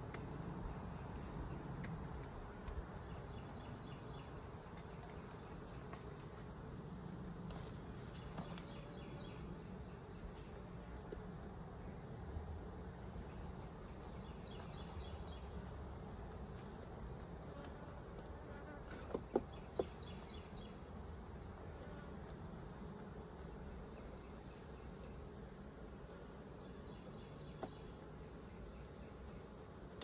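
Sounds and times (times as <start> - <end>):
honeybees buzzing: 0.0 - 30.0
hive tool knocking on frames: 18.9 - 20.2.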